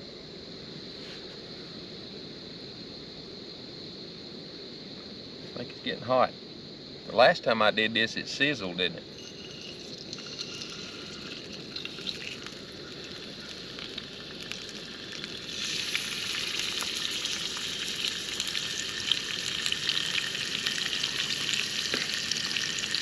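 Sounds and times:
grease sizzling and crackling: 9.0s - 23.0s.

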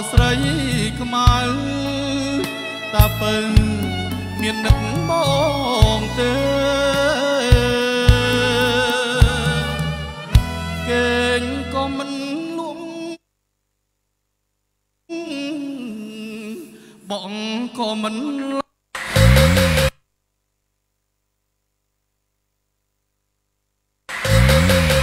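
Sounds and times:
bass notes: 0.0s - 12.0s, 19.0s - 19.9s, 24.1s - 25.0s
person singing: 0.0s - 13.2s, 15.1s - 18.6s.

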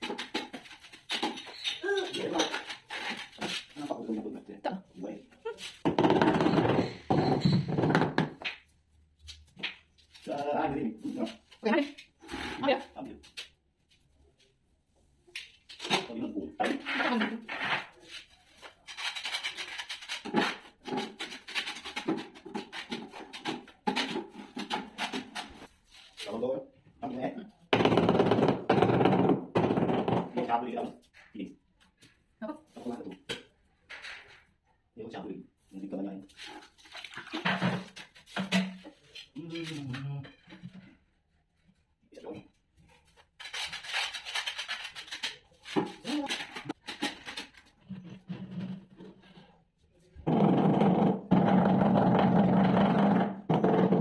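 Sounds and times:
scraping mortar in plastic bucket: 16.7s - 26.4s, 43.4s - 49.6s
hand tool scraping: 16.8s - 26.4s, 43.4s - 49.6s.

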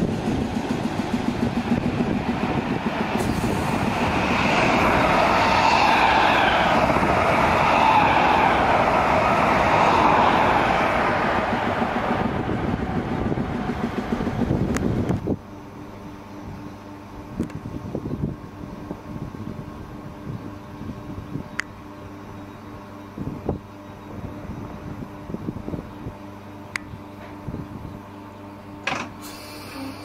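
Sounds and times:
train passing at speed: 0.0s - 17.0s
electric train moving along platform: 0.0s - 30.0s.

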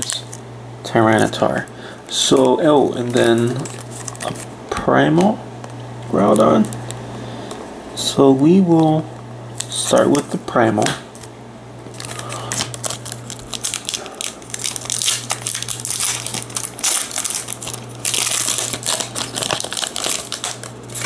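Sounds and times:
foil wrapper crinkling and tearing: 0.0s - 0.4s, 2.2s - 4.5s, 11.9s - 21.0s.

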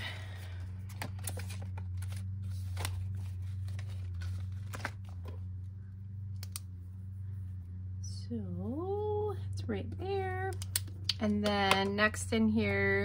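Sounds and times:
steady low hum: 0.0s - 13.0s
paper and plastic rustling: 0.4s - 5.5s.

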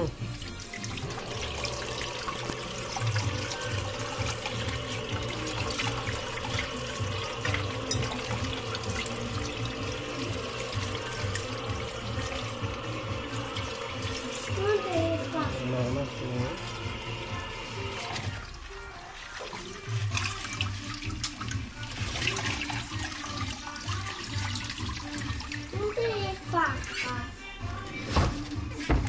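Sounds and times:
water splashing off fish: 0.0s - 26.8s
tap running into steel sink: 4.2s - 9.8s.

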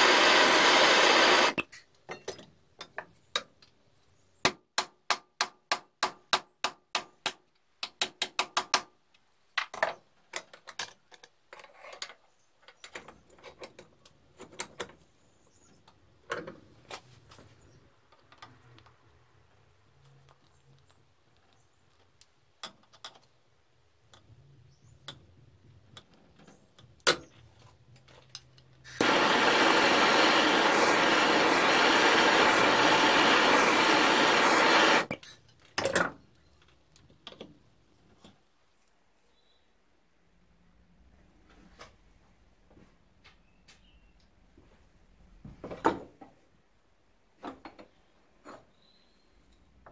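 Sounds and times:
loud steady rushing noise: 29.0s - 35.1s.

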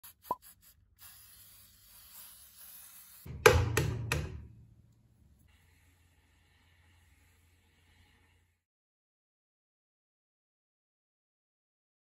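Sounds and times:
aerosol spray hissing: 0.0s - 3.3s.

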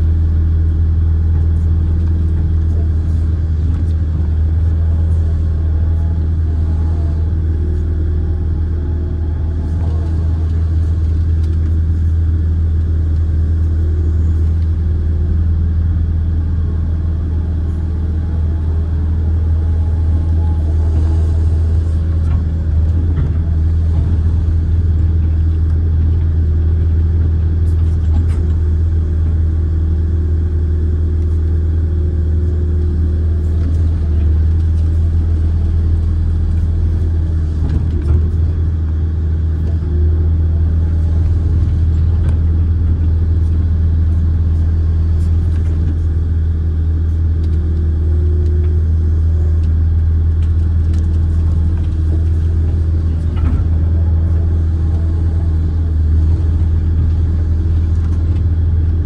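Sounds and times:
excavator diesel engine drone: 0.0s - 59.0s.

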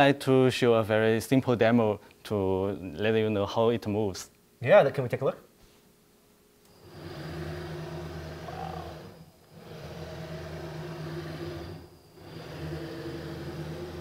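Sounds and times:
robot arm motors whirring: 6.7s - 14.0s.

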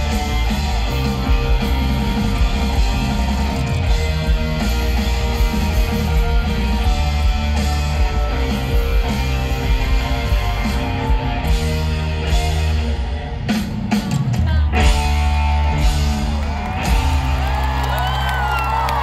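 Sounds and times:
crowd whooping and cheering: 0.0s - 12.3s, 15.0s - 19.0s
bass notes: 0.0s - 13.6s
electric guitars: 0.0s - 19.0s.

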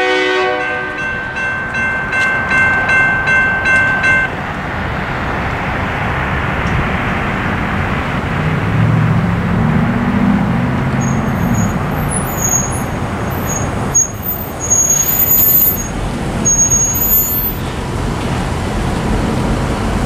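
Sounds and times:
road traffic rumble and hiss: 0.0s - 20.0s
low engine drone: 4.1s - 12.0s
thin high-pitched squeals: 11.0s - 17.6s.

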